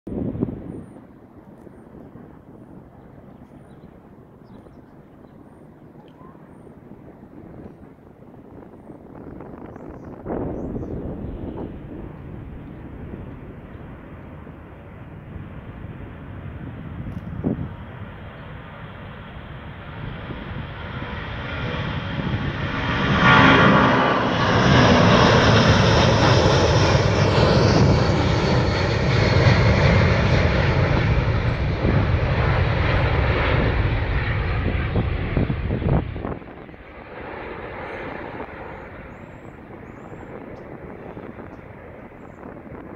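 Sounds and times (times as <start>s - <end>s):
jet engines roaring at takeoff: 0.1s - 42.9s.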